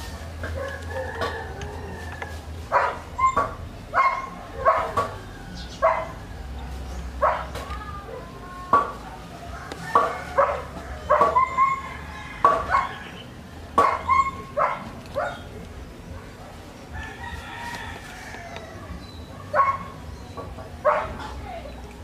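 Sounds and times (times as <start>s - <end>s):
rooster crowing: 0.6s - 2.5s, 5.0s - 6.7s, 9.4s - 13.3s, 16.9s - 19.0s.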